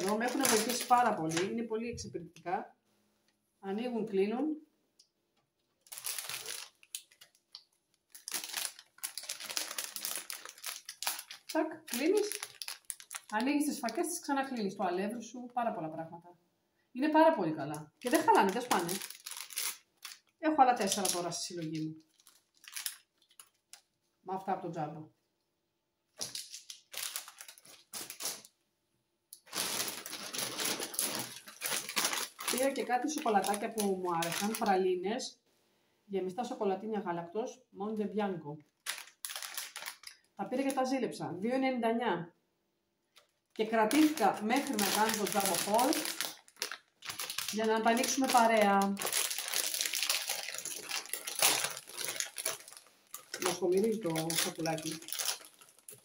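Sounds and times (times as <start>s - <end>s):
plastic bag rustling: 0.0s - 1.6s, 5.6s - 14.1s, 17.9s - 24.0s, 26.2s - 28.6s, 29.4s - 34.8s, 38.7s - 40.2s, 43.2s - 56.0s
plastic packaging crinkling: 0.0s - 1.7s, 5.5s - 14.8s, 17.7s - 24.0s, 26.2s - 28.6s, 29.4s - 34.8s, 38.6s - 40.8s, 43.1s - 56.0s.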